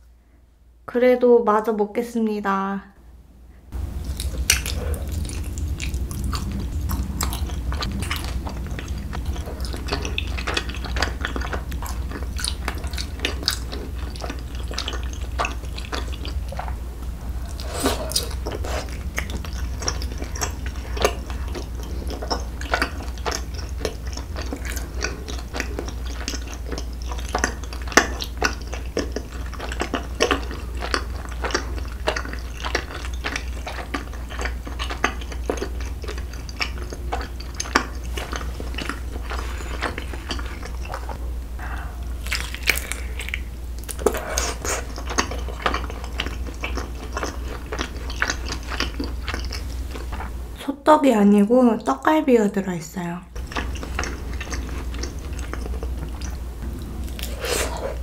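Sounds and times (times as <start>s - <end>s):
steady low hum: 2.9s - 58.0s
close chewing and biting: 3.8s - 50.4s, 53.4s - 58.0s
wet mouth clicks: 42.0s - 44.9s.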